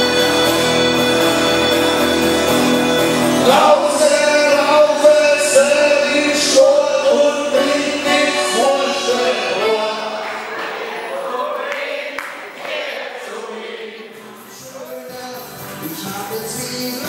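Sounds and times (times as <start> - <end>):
accordion chord: 0.0 - 11.5
acoustic guitars: 0.0 - 17.0
man singing: 3.4 - 10.5, 13.4 - 17.0.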